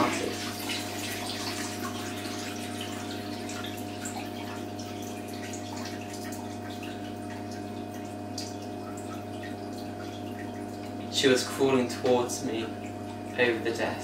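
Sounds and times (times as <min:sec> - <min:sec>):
steady low hum: 0:00.0 - 0:14.0
water dripping in bucket: 0:01.7 - 0:11.2, 0:11.9 - 0:13.4.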